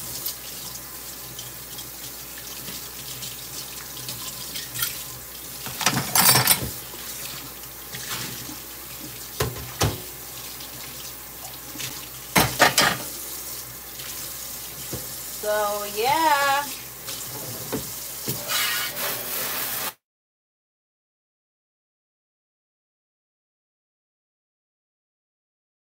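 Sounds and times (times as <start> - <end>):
dishes clattering against sink: 4.5 - 6.9, 9.4 - 10.1, 12.3 - 13.2
tap running into metal sink: 9.4 - 10.1, 12.4 - 13.1.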